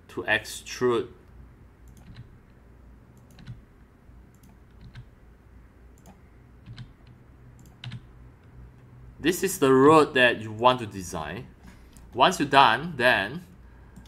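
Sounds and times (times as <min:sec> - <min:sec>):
low steady hum: 0:00.0 - 0:14.0
mouse and keyboard clicks: 0:01.9 - 0:02.3.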